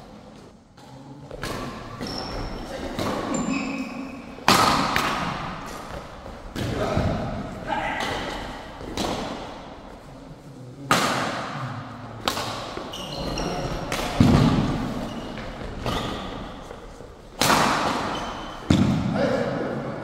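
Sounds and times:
shoe squeaks on court: 2.0 - 4.3, 12.9 - 13.9, 14.9 - 16.7, 18.0 - 18.7.

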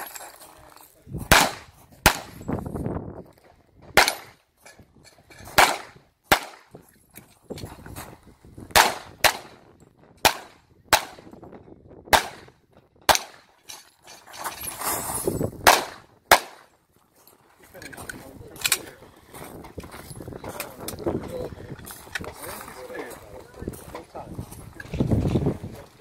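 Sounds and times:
pistol shots: 1.3 - 2.4, 4.0 - 4.4, 5.6 - 6.7, 8.7 - 9.6, 10.2 - 11.3, 12.1 - 13.5, 15.6 - 16.7.

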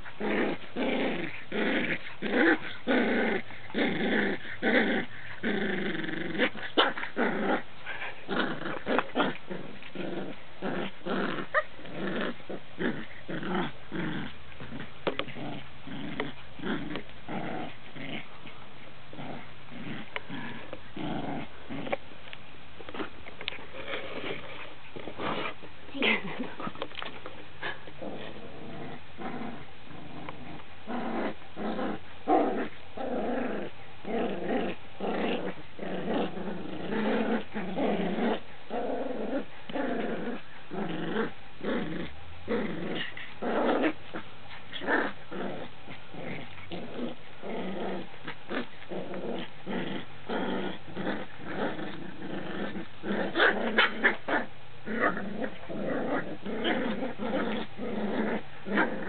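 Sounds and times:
puppies growling in play: 0.0 - 59.0.

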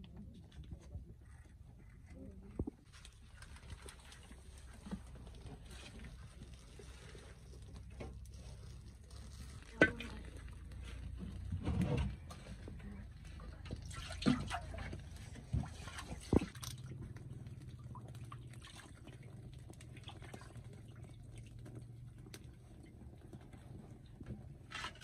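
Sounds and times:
wood fire crackling: 2.5 - 14.0, 16.3 - 24.7.

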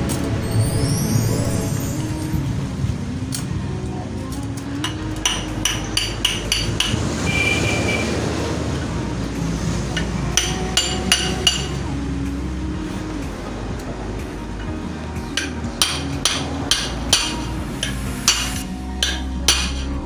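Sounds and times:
low rumble: 0.0 - 20.0
hammer striking steel punch: 4.8 - 7.0, 10.4 - 11.8, 15.4 - 19.9.

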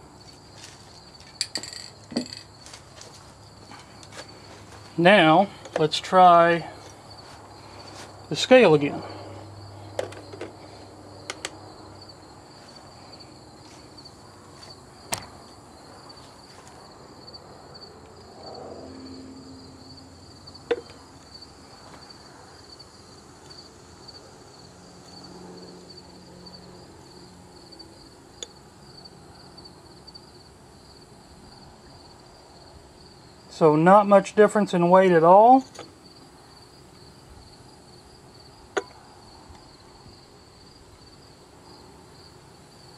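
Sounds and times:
crickets chirring: 0.0 - 42.9
sharp clicks and light knocks: 11.2 - 11.6, 15.1 - 15.4.

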